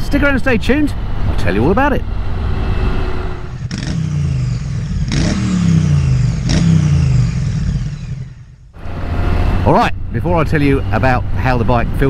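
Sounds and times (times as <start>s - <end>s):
motorcycle engine revving: 2.2s - 9.9s.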